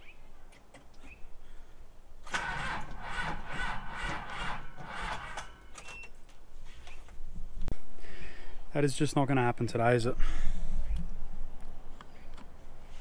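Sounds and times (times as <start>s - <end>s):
truck engine cranking: 2.2s - 6.2s.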